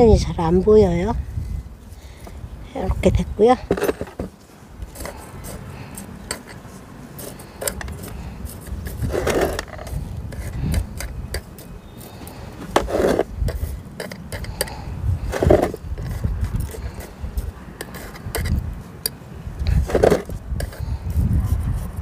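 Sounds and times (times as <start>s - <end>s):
gloved hands rubbing leaves: 4.3s - 19.0s
metal tweezers scraping and clicking: 4.9s - 20.8s.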